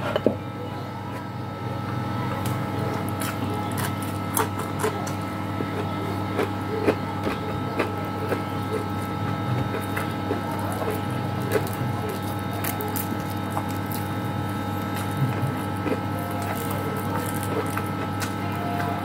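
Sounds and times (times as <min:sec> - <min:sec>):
steady mechanical hum: 0:00.0 - 0:19.0
person chewing food: 0:02.4 - 0:19.0
small clicks and crunches: 0:14.8 - 0:18.9.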